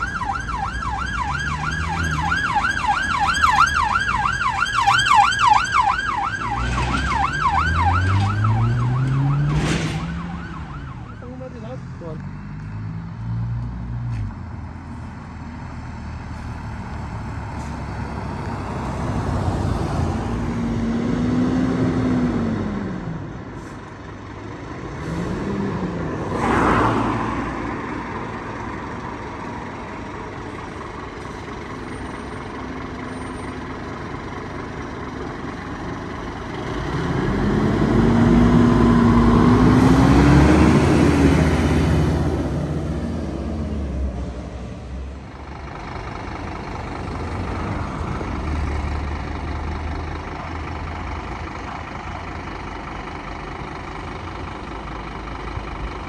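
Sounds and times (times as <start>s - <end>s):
fire engine diesel passing: 0.0s - 56.0s
heavy vehicles driving by: 0.0s - 56.0s.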